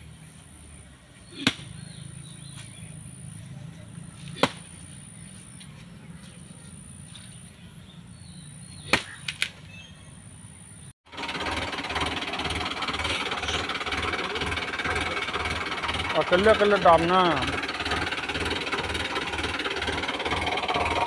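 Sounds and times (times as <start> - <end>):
axe chopping into ground: 1.4 - 1.7, 4.3 - 4.7, 8.8 - 9.6.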